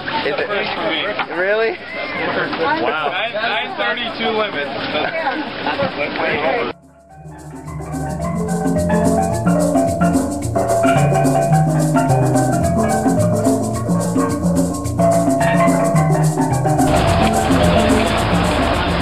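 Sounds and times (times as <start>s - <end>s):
repeating percussion beat: 6.7s - 19.0s
melody of short pitched notes: 6.8s - 19.0s.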